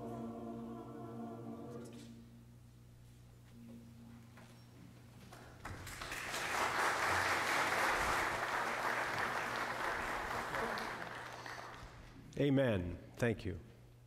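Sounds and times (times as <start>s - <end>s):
congregation applauding: 5.6s - 12.1s.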